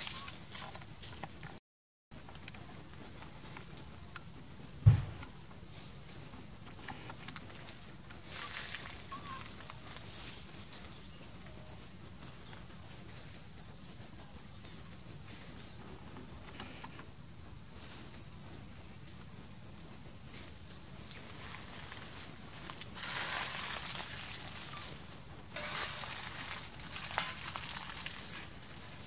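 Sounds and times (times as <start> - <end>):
insect trilling: 0.0 - 0.4, 7.5 - 14.8, 20.0 - 29.0.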